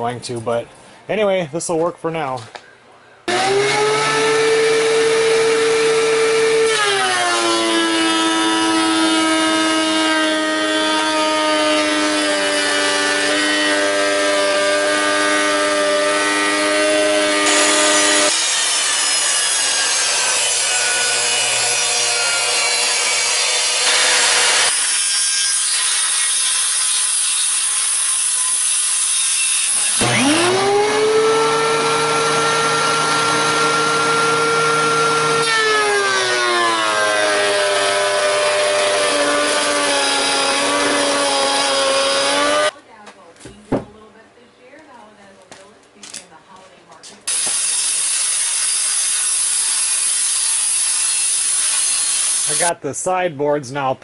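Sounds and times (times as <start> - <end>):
thickness planer planing board: 3.3 - 42.7.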